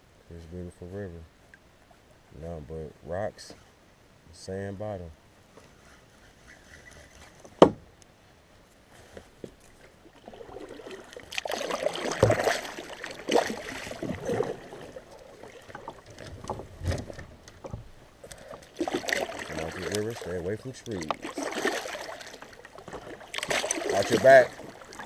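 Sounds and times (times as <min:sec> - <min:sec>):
water sloshing around kayak: 0:09.3 - 0:25.0.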